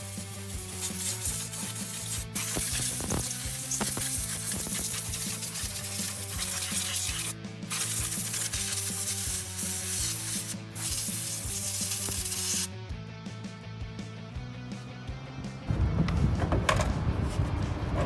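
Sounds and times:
compressed-air blowgun hissing: 0.0 - 12.7.

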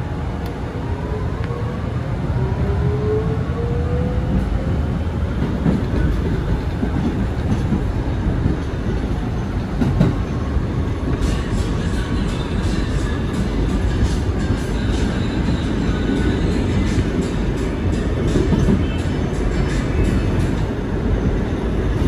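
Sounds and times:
wheels rumbling on track: 2.8 - 22.0.

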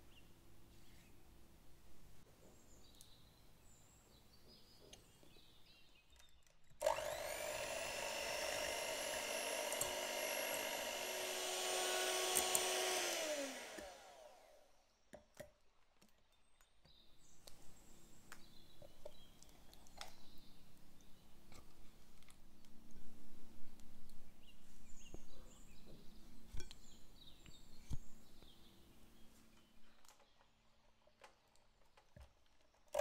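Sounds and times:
electric hand mixer whirring: 6.8 - 14.7.

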